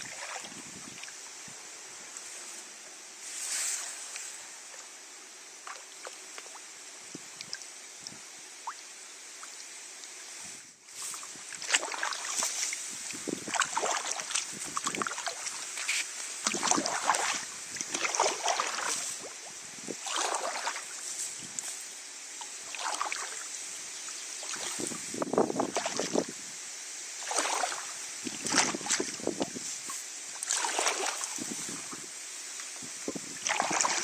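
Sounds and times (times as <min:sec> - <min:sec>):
kayak paddle splashing in water: 0:10.9 - 0:21.0, 0:22.4 - 0:23.4, 0:24.4 - 0:26.3, 0:27.2 - 0:34.0.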